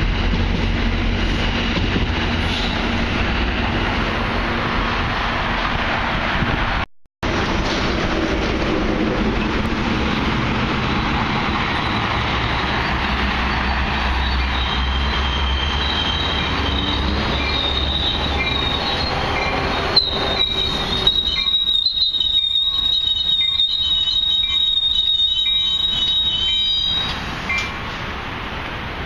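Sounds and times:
train rumbling into station: 0.0s - 29.0s
high wheel squeal: 10.9s - 27.8s.

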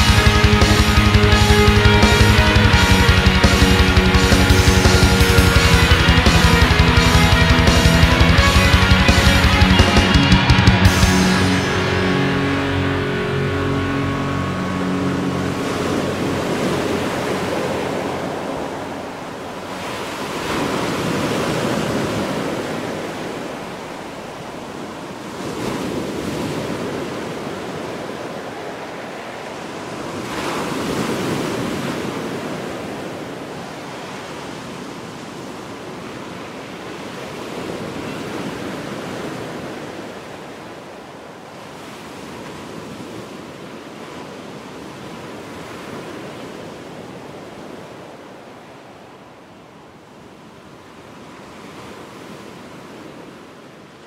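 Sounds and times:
waves breaking on rocky shore: 14.5s - 54.0s.

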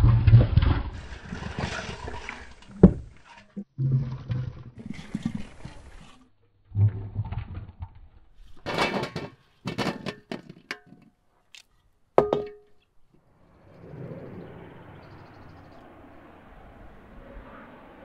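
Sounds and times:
potatoes clattering into metal tray: 8.6s - 11.0s.

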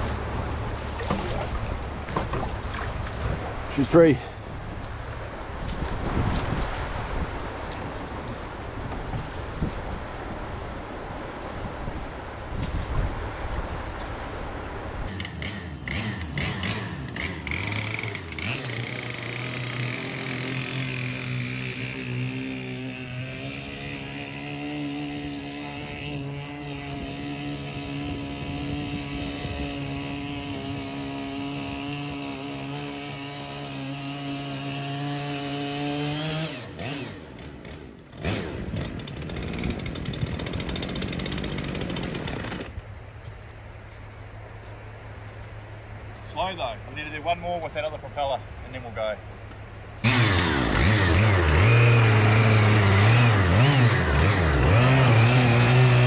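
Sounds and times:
chainsaw engine at high revs: 15.1s - 42.8s, 50.0s - 56.0s.

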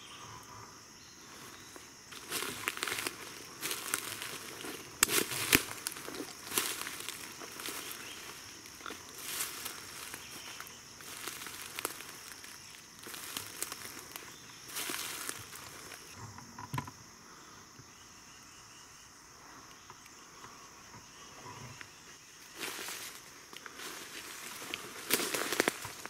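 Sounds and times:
high insect drone: 0.0s - 26.0s
footsteps crunching dry leaves: 2.1s - 16.2s, 22.5s - 26.0s.

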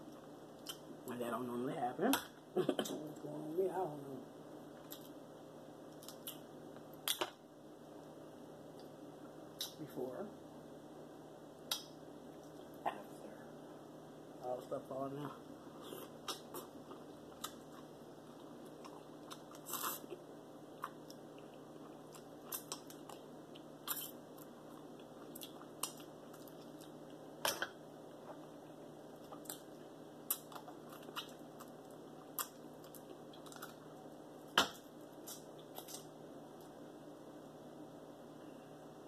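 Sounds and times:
chewing and lip smacking: 15.8s - 20.2s, 20.8s - 27.2s, 29.2s - 34.0s.

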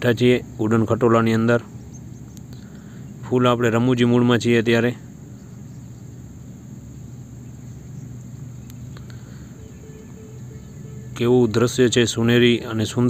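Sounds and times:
cable car cabin humming: 0.0s - 13.0s
faint clicks: 8.6s - 9.2s.

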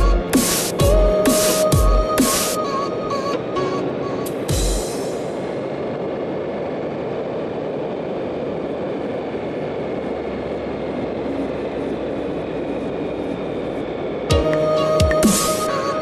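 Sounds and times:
bicycle wind and tyre noise: 0.0s - 16.0s.

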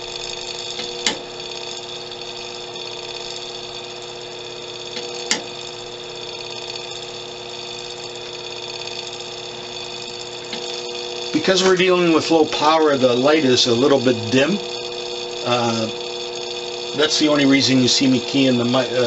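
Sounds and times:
radio set electrical hum and whine: 0.0s - 19.0s.

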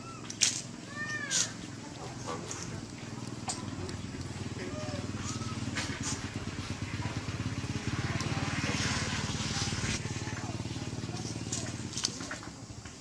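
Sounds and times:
small engine puttering: 0.0s - 13.0s
hiss: 7.5s - 10.0s.

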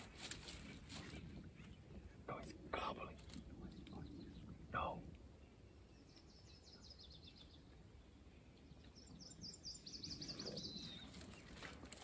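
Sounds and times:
songbird trilling chirps: 3.6s - 11.8s.

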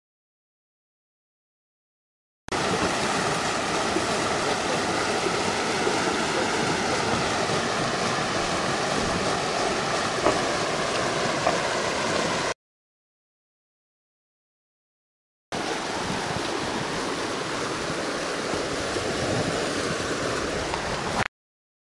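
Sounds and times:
river rushing over rocks: 2.5s - 12.5s, 15.6s - 21.3s.

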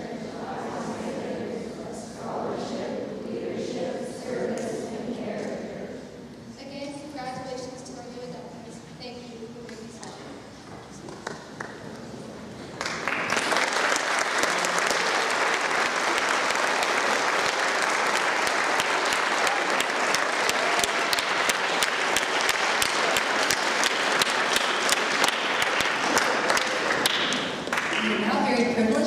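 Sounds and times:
audience applause: 12.8s - 28.3s.

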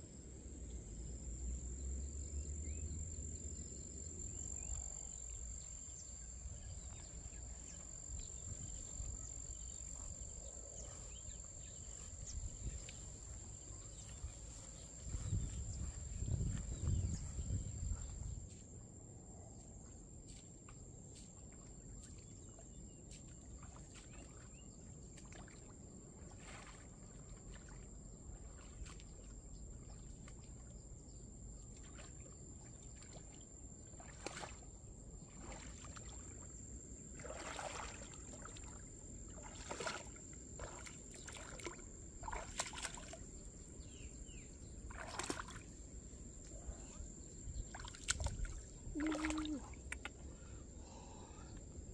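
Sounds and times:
bare feet splashing in water: 21.9s - 30.7s, 31.6s - 46.6s, 47.5s - 50.2s.

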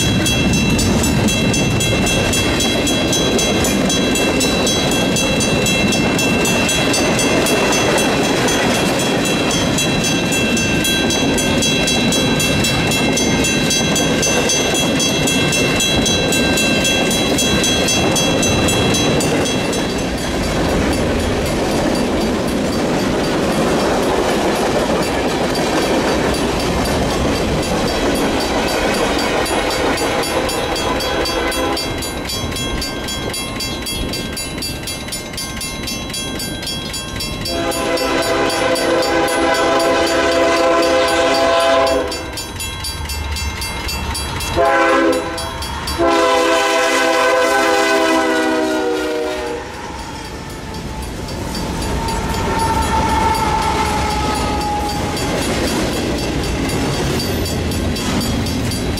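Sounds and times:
freight train cars rumbling and clacking: 0.0s - 58.9s
locomotive air horn blasts: 31.1s - 31.9s, 37.5s - 42.3s, 44.6s - 49.9s, 52.2s - 55.0s.

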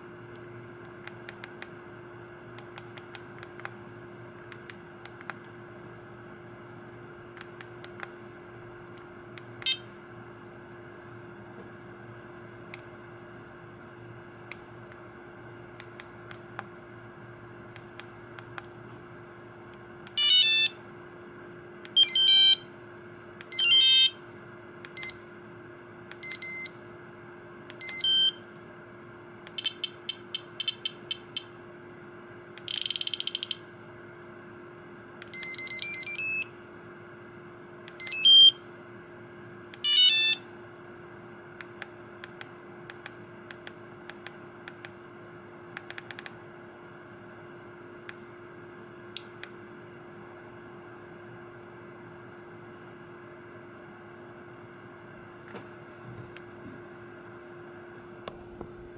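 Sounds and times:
electronic ticks: 29.5s - 31.5s, 32.6s - 33.6s.

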